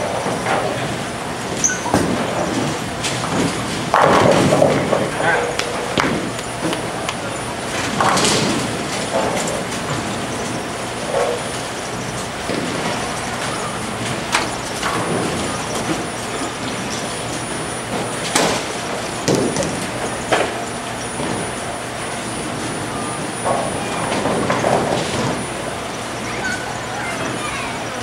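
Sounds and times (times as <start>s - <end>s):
bowling balls rolling on lanes: 0.0s - 28.0s
bowling pins crashing: 1.9s - 7.0s, 17.9s - 21.6s.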